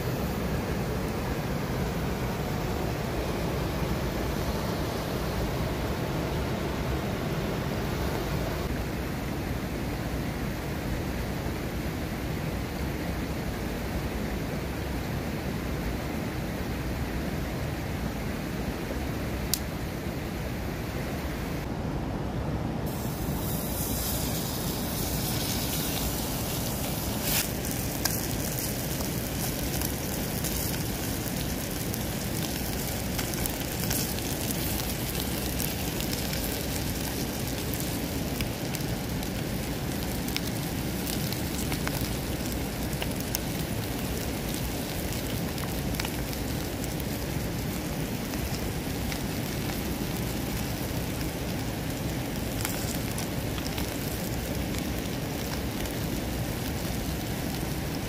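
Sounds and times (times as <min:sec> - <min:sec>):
wood fire crackling: 0:19.4 - 0:19.8, 0:22.9 - 0:58.0.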